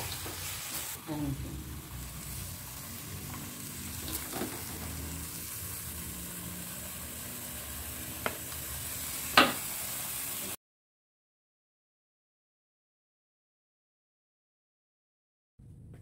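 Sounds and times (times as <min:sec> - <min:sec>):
food sizzling in a wok: 0:00.0 - 0:10.6.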